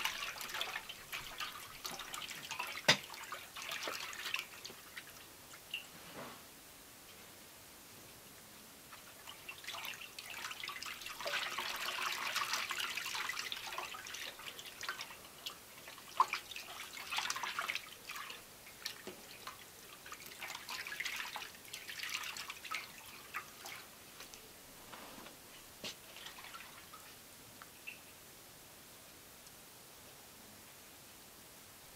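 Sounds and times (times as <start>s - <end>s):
cloth sloshing in liquid: 0.0s - 5.2s, 8.9s - 27.2s.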